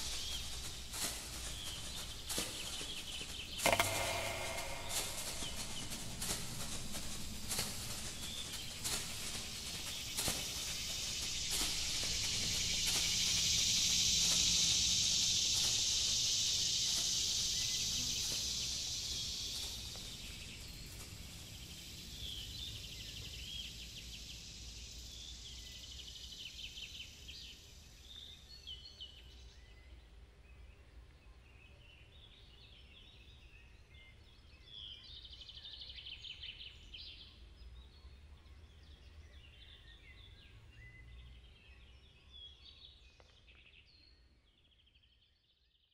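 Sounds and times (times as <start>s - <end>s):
loud high hiss: 3.6s - 20.8s.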